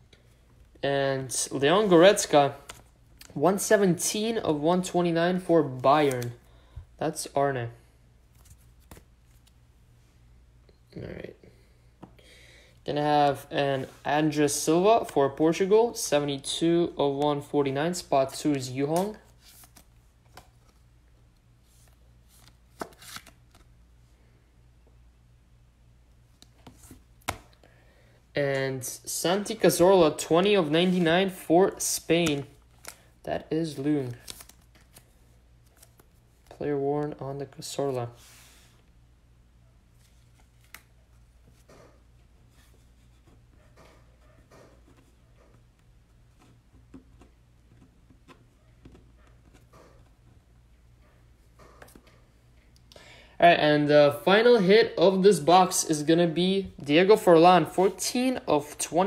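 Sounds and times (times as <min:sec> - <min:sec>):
low steady hum: 0:00.0 - 0:59.0
cards rustling: 0:00.2 - 0:06.6, 0:08.2 - 0:09.6, 0:13.8 - 0:23.8, 0:29.0 - 0:38.7, 0:39.9 - 0:50.3.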